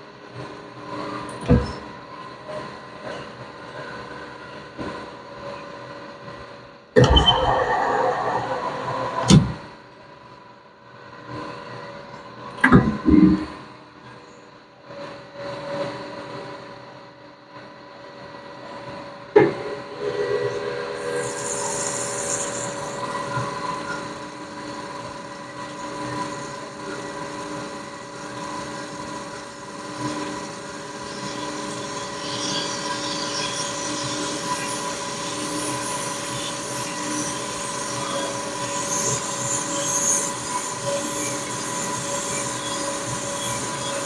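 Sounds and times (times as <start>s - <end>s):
metal-on-metal squeal: 7.0s - 9.7s
sharp bang: 7.0s - 9.7s.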